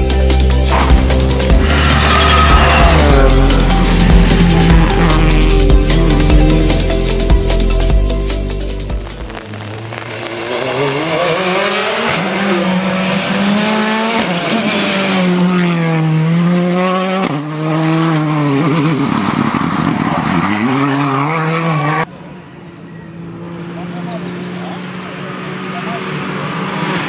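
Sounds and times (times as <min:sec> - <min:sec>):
rally car engines revving hard: 0:00.4 - 0:07.6, 0:09.3 - 0:22.1, 0:23.0 - 0:27.0.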